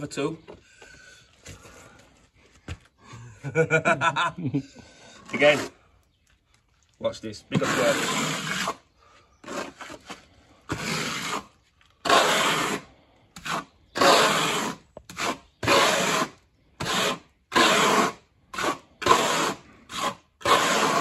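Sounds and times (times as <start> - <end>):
steel trowel scraping render: 5.3 - 5.8, 7.5 - 8.8, 9.4 - 21.0.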